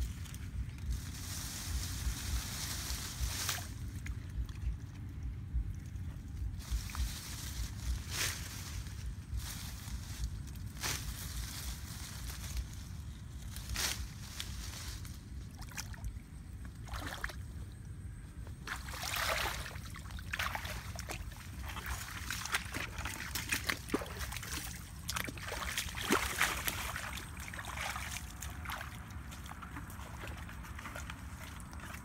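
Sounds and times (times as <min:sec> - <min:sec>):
branches rustling: 0:00.0 - 0:17.6, 0:18.2 - 0:32.0
feet splashing through water: 0:15.5 - 0:17.6, 0:18.6 - 0:32.0.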